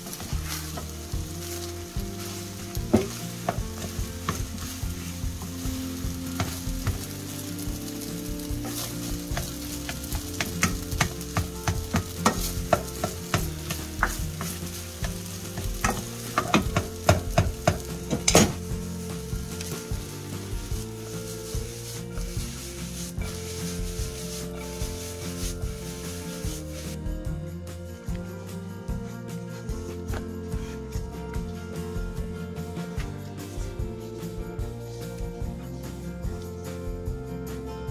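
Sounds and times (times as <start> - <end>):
fried rice sizzling in wok: 0.0 - 27.0
spatula scraping and tapping pan: 0.0 - 27.0.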